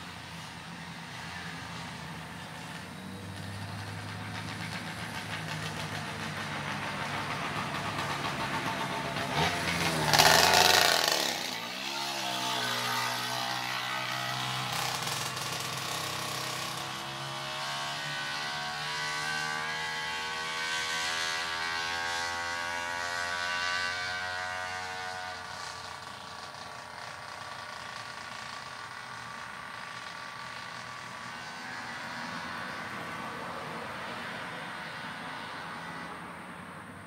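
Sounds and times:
vehicle engine rising in pitch: 0:02.8 - 0:25.5.

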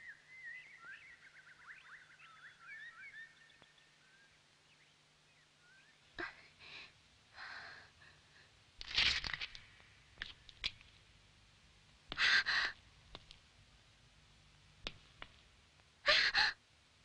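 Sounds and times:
girl gasping and sighing: 0:12.1 - 0:12.8, 0:16.0 - 0:16.6.

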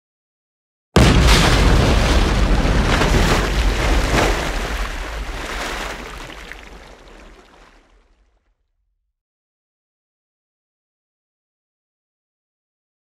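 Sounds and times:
large water splash: 0:01.0 - 0:08.0.

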